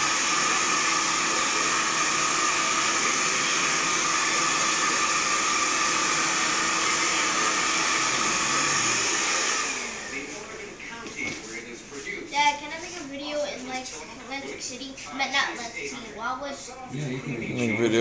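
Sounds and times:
hair dryer running: 0:00.0 - 0:10.6.

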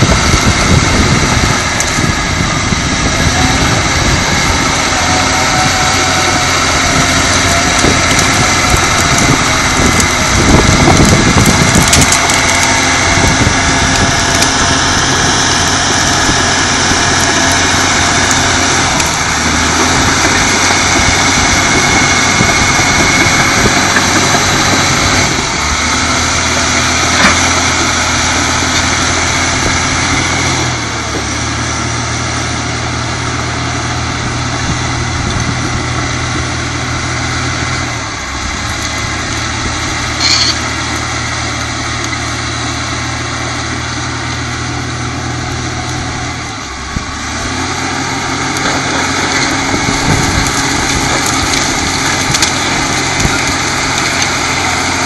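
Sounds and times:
diesel engine running hard: 0:00.0 - 0:55.0
short high squeak: 0:40.2 - 0:40.7.

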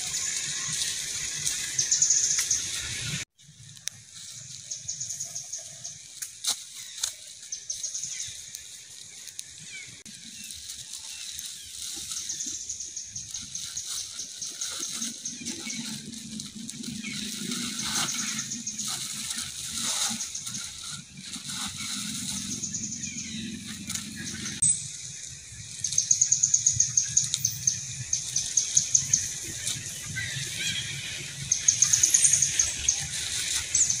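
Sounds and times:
sharp clicks and crackles: 0:00.0 - 0:25.1
high chirping trills: 0:09.6 - 0:34.0.

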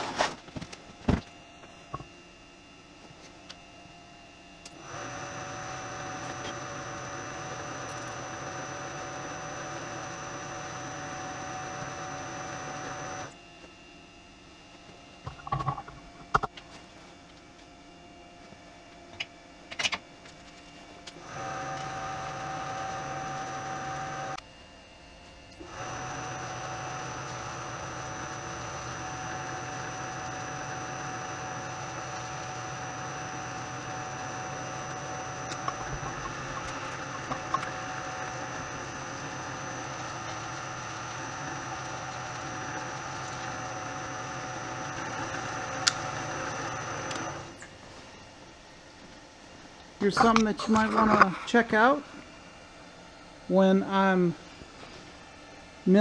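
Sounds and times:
milling machine motor whining: 0:04.6 - 0:13.4, 0:21.0 - 0:24.4, 0:25.5 - 0:47.6.

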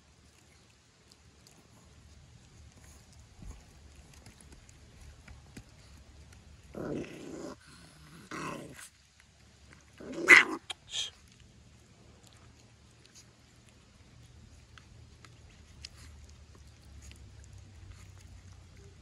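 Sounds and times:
dog growling: 0:06.7 - 0:08.9, 0:09.8 - 0:10.7.

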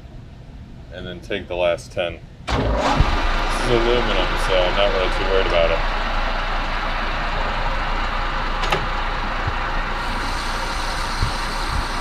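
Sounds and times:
metal lathe cutting: 0:03.2 - 0:12.0.

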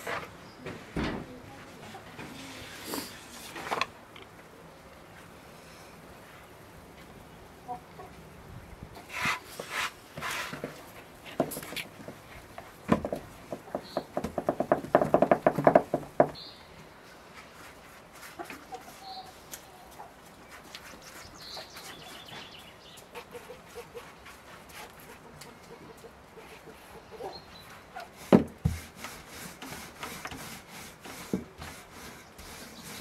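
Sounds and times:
chicken clucking: 0:07.6 - 0:08.2, 0:18.4 - 0:20.2, 0:21.4 - 0:24.2, 0:24.8 - 0:28.1.

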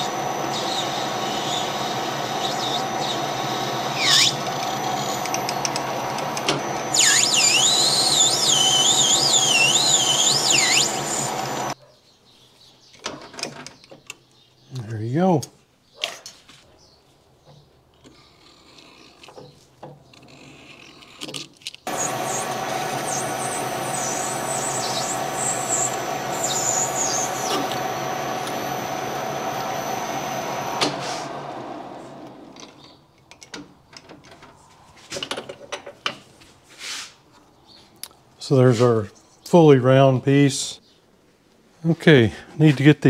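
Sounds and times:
lathe squeals: 0:00.0 - 0:11.8, 0:21.9 - 0:32.6
metal lathe running: 0:00.0 - 0:11.8, 0:21.9 - 0:32.6.

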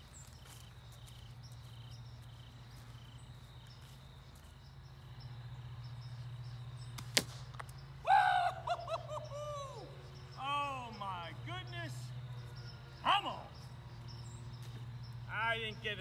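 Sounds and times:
air rifle shot: 0:07.0 - 0:07.6
man whooping shout: 0:08.0 - 0:10.9.

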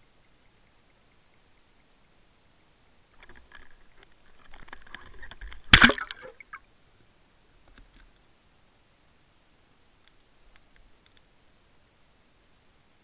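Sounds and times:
splash into water: 0:05.7 - 0:06.6
faint clicks: 0:10.0 - 0:11.3.

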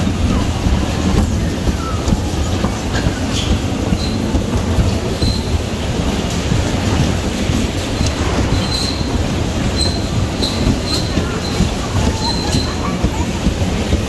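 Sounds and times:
bumper cars rumbling: 0:00.0 - 0:14.0
short high squeaks: 0:08.5 - 0:09.2.

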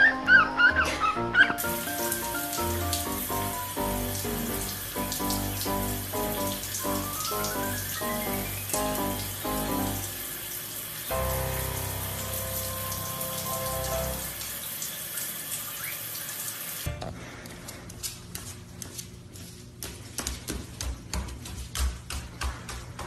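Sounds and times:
shower spray hissing: 0:01.6 - 0:16.9.

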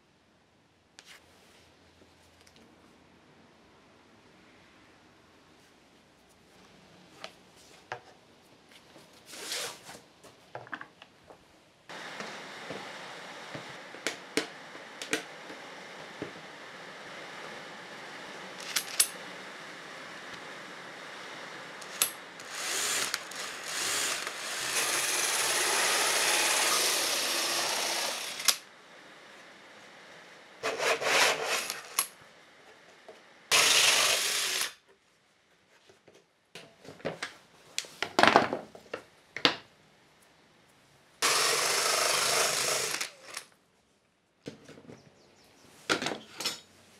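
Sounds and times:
drill cutting through plywood: 0:21.2 - 0:28.7, 0:30.6 - 0:32.0, 0:33.5 - 0:34.8, 0:41.2 - 0:43.4.

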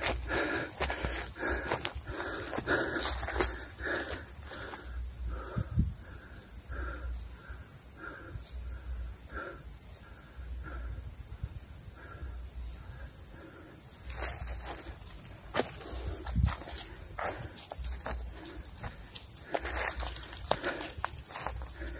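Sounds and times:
footsteps on dirt trail: 0:00.0 - 0:05.6, 0:14.0 - 0:21.9
cicadas buzzing: 0:00.0 - 0:21.9.

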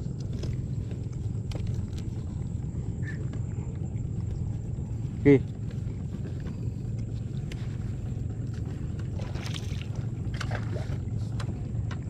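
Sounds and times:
small boat motor running: 0:00.0 - 0:12.0.

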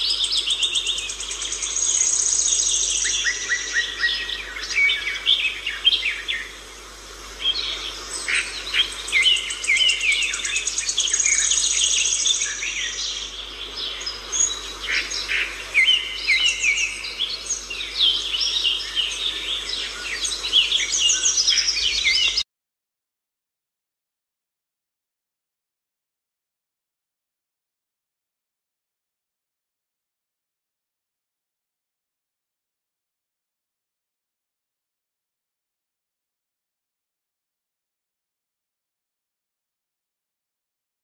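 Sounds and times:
birds chirping and singing: 0:00.0 - 0:22.4.

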